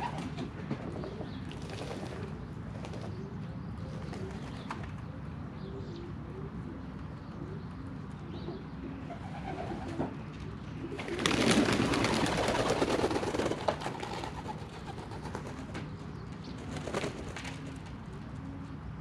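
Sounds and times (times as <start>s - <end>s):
pigeons cooing: 0.0s - 19.0s
splashing and wing-flapping: 10.9s - 15.8s.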